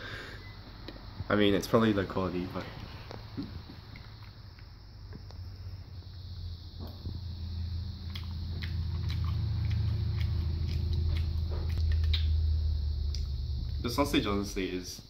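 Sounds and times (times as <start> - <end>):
low rumble with deep hum: 0.0 - 15.0
mouth noises of eating: 8.0 - 12.4.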